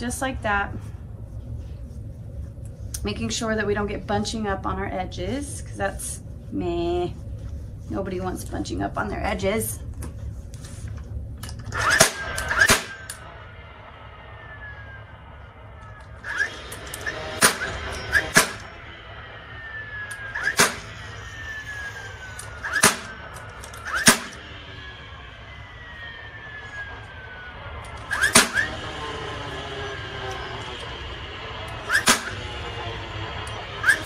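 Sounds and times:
falling whine: 0:00.0 - 0:34.0
stapler firing sharp cracks: 0:11.8 - 0:13.1, 0:17.0 - 0:18.7, 0:20.4 - 0:20.9, 0:22.7 - 0:23.2, 0:24.0 - 0:24.4, 0:28.1 - 0:28.8, 0:31.9 - 0:32.4.

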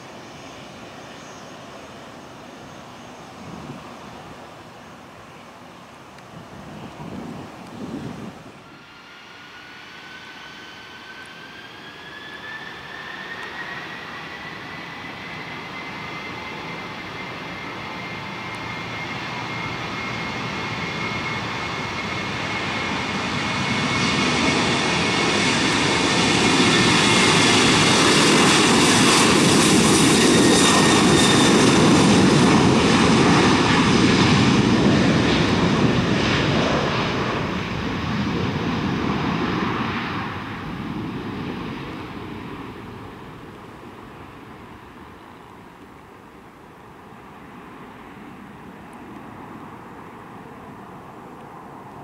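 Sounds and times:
jet engine whine: 0:00.0 - 0:52.0
jet engine rushing rumble: 0:06.4 - 0:45.3.

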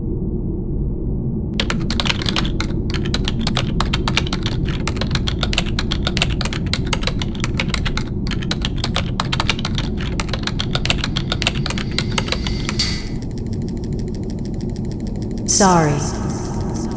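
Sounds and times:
low rumble: 0:00.0 - 0:16.9
rapid clicking: 0:01.6 - 0:16.9.

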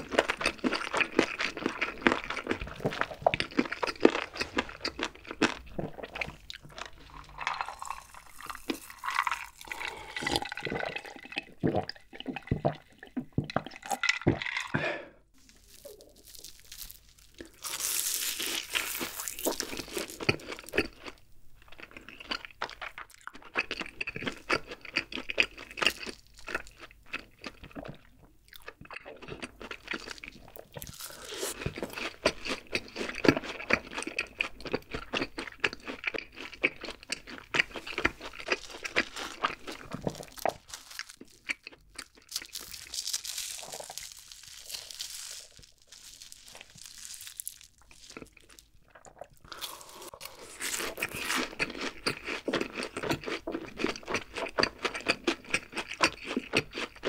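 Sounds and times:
chewing crisp food: 0:00.0 - 0:57.0
gulps of drink being swallowed: 0:06.3 - 0:15.2, 0:48.9 - 0:51.6.

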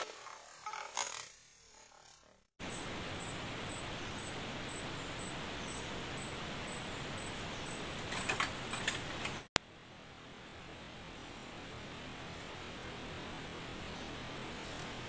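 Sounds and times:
high insect chirp: 0:00.0 - 0:09.5
rustles: 0:00.0 - 0:09.5, 0:10.1 - 0:15.0
forest ambience hiss: 0:00.0 - 0:15.0.

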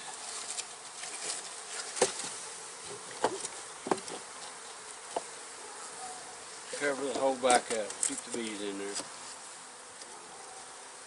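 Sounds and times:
honey bees buzzing: 0:00.0 - 0:11.0
knocks on wooden package: 0:03.2 - 0:04.2.

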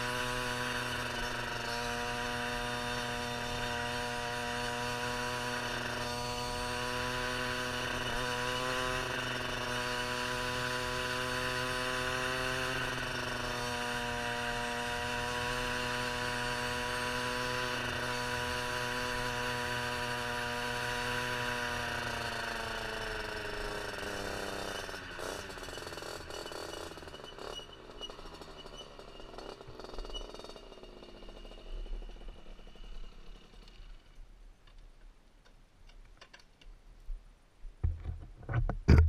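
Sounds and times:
two-stroke motorcycle engine: 0:00.0 - 0:34.8
clicks and knocks: 0:37.8 - 0:39.0.

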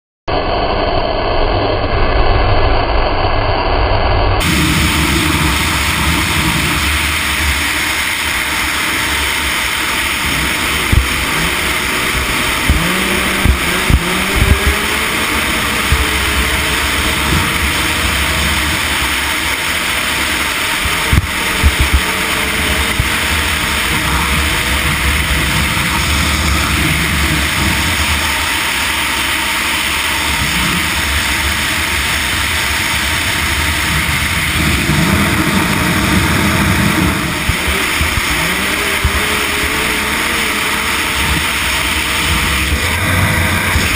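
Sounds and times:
snowmobile engine at high speed: 0:00.3 - 0:43.9
steady rush of noise: 0:00.3 - 0:43.9
sharp thumps: 0:10.2 - 0:19.6.

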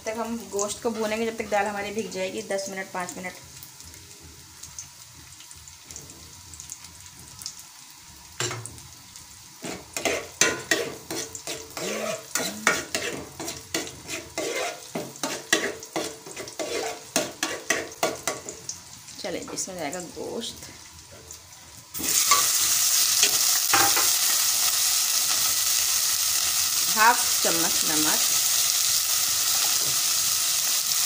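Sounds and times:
onions sizzling in oil: 0:00.0 - 0:31.0
spoon scraping a pot: 0:09.6 - 0:18.4.

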